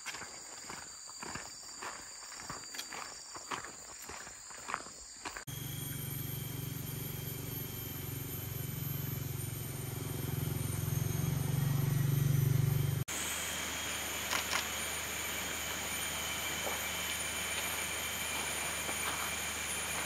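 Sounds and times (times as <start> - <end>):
steady hiss: 13.1 - 20.0.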